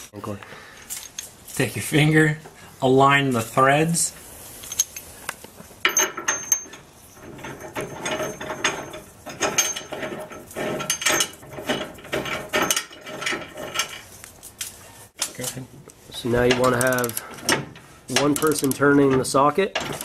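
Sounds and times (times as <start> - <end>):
metal bolt clicking and scraping: 4.6 - 15.6, 16.4 - 20.0.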